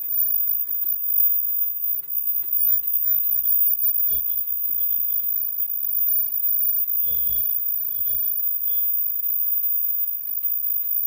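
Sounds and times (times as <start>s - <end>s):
high-pitched machine whine: 0.0s - 11.0s.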